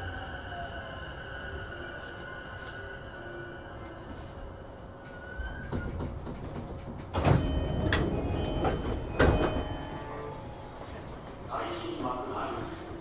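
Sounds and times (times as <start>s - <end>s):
train doors sliding: 3.8s - 12.2s.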